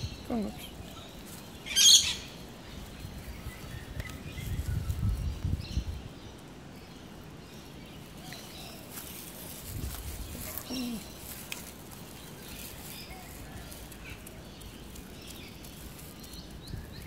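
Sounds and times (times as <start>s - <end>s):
faint bird calls: 10.2s - 11.9s.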